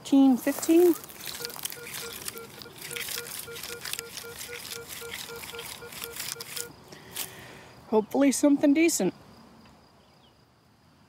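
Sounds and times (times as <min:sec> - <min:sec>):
metal detector beeping: 0:00.2 - 0:06.8
coil brushing through dry grass: 0:00.3 - 0:07.3.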